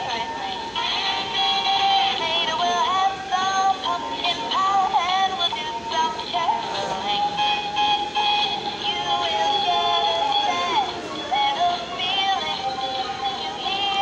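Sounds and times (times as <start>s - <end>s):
high electronic singing voice: 0.0s - 14.0s
toy backing music: 0.0s - 14.0s.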